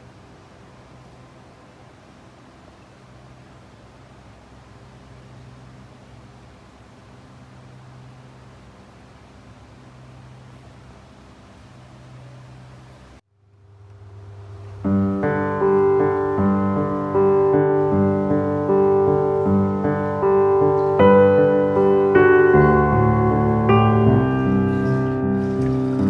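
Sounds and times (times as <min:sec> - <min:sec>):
slow piano melody: 0:14.8 - 0:26.0.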